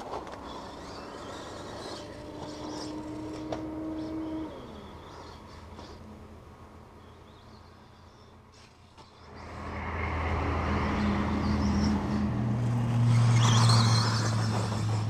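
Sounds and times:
motor humming: 0.0s - 6.4s.

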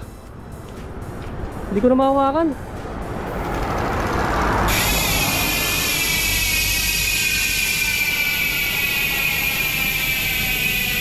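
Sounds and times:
bicycle hub freewheel clicking buzz: 3.1s - 11.0s.

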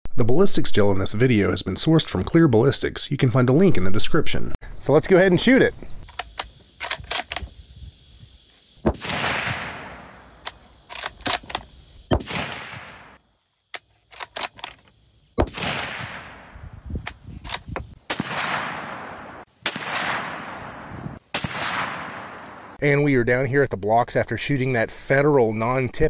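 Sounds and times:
short clicks: 6.0s - 7.5s
rifle shots with echo: 8.9s - 10.4s, 12.1s - 13.2s, 15.4s - 16.6s, 18.0s - 22.8s.

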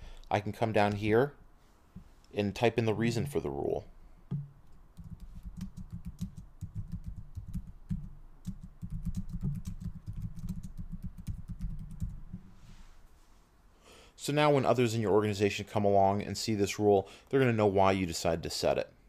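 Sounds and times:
typing on a keyboard: 5.0s - 12.2s.

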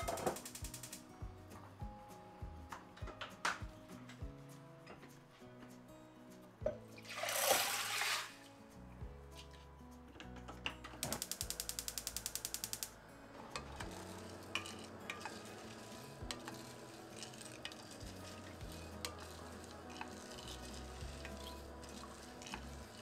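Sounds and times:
utensils tapping and clinking: 0.0s - 1.0s, 13.5s - 23.0s
fast sharp clicks: 0.0s - 1.1s, 11.0s - 13.0s
soft background music: 0.0s - 23.0s
stirring: 13.5s - 23.0s.

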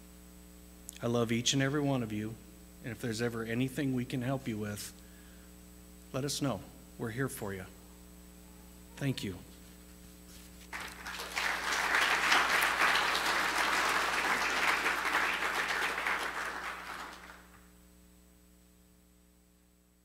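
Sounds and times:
congregation applauding: 10.7s - 17.6s.

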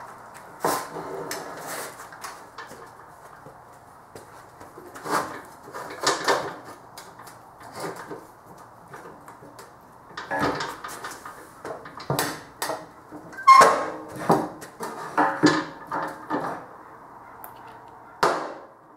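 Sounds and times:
metal clunks and knocks: 10.1s - 16.7s.

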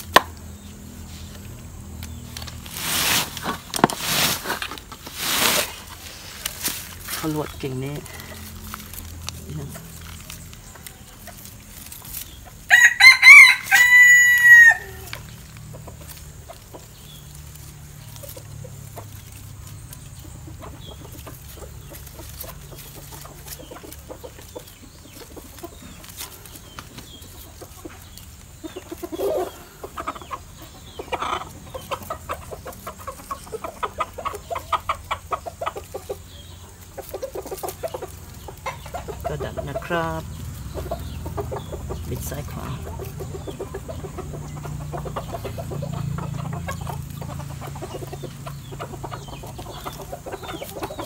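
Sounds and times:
chickens clucking: 0.0s - 51.0s
rooster crowing: 12.7s - 15.1s.

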